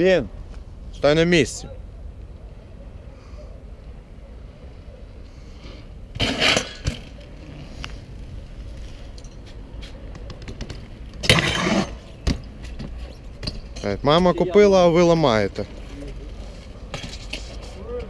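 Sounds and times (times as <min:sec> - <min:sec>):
bike scraping on concrete: 0:05.5 - 0:13.8, 0:15.5 - 0:18.0
bike clacking on ledge: 0:09.8 - 0:13.9.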